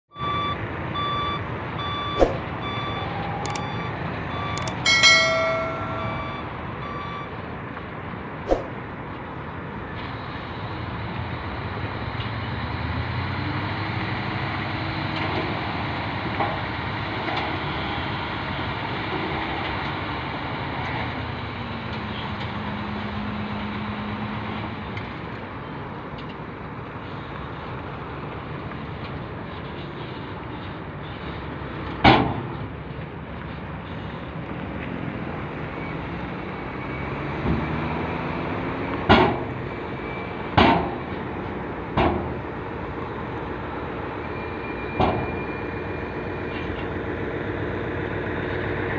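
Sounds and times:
reverse alarm beeping: 0.1s - 7.4s.

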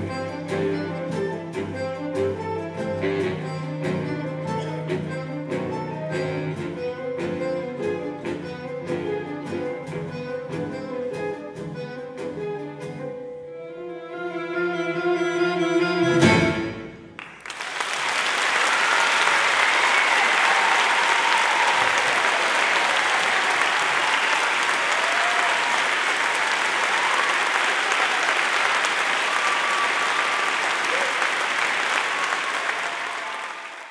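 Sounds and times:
audience applause: 17.2s - 33.9s.

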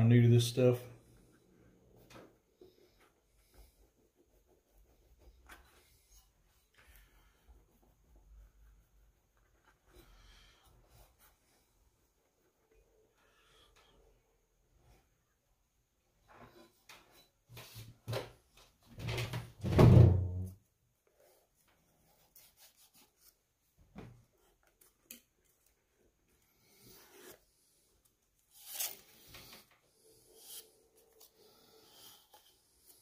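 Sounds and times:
scrape: 2.6s - 14.0s, 21.2s - 23.4s, 26.5s - 33.0s.

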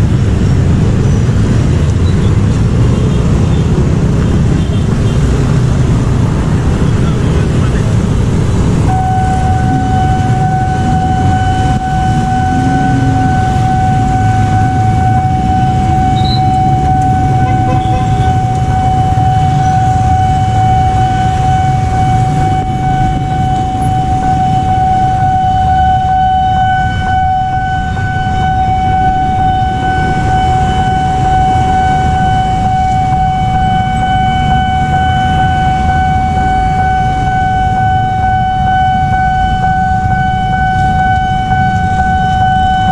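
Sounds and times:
vehicle engines: 0.0s - 42.9s
level-crossing alarm tone: 8.8s - 42.9s.

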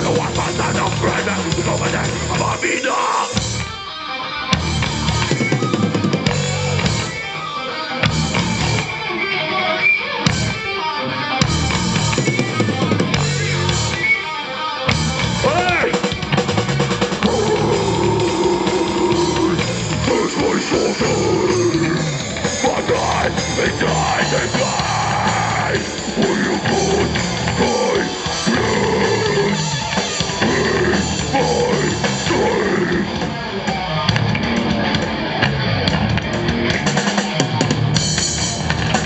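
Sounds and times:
metal band playing live: 0.0s - 39.0s
bass drum and snare: 4.6s - 7.2s, 8.0s - 8.9s, 11.4s - 14.1s, 14.9s - 20.2s, 34.1s - 39.0s.

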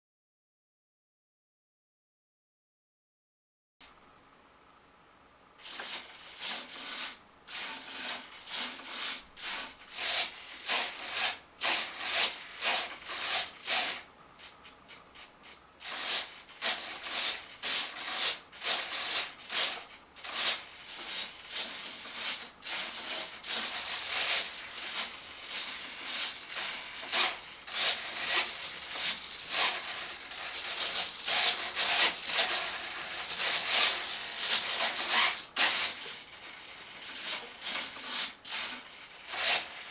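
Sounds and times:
servos whirring in bursts: 15.8s - 39.9s.

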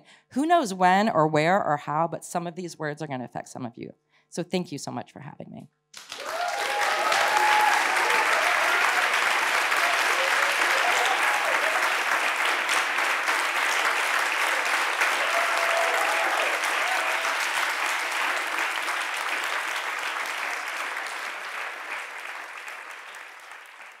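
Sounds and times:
audience applauding: 6.0s - 24.0s.

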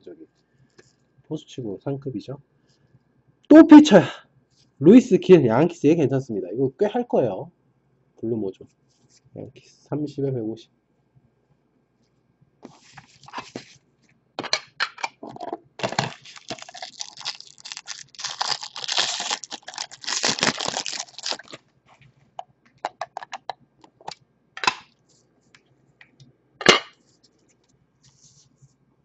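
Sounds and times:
plastic crinkling and rustling: 12.6s - 13.8s, 15.8s - 22.1s.

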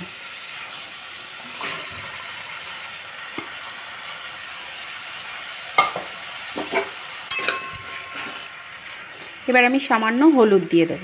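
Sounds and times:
potatoes sizzling in oil: 0.0s - 11.0s
clinks against pan: 2.8s - 3.6s, 5.8s - 8.3s.

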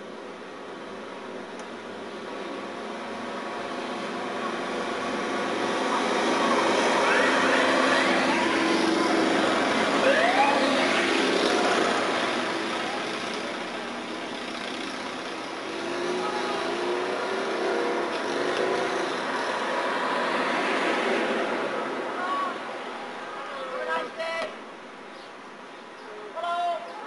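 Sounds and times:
street traffic passing: 0.0s - 27.0s
motorcycle engines passing: 2.0s - 23.4s
siren whoops: 10.0s - 10.9s.

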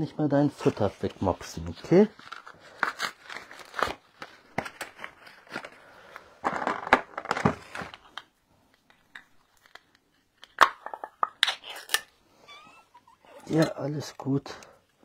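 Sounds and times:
plastic packaging crinkling: 0.7s - 8.2s.

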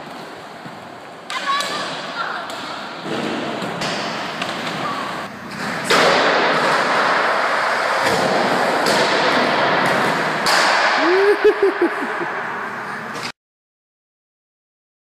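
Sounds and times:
skateboard wheels rolling on concrete: 0.0s - 11.6s
skateboard thudding on ramps: 5.8s - 11.0s.

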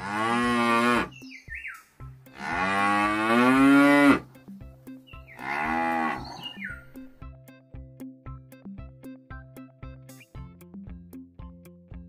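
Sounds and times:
cows mooing: 0.0s - 1.2s, 2.3s - 4.3s, 5.4s - 6.6s
background music with steady beat: 0.0s - 12.0s.

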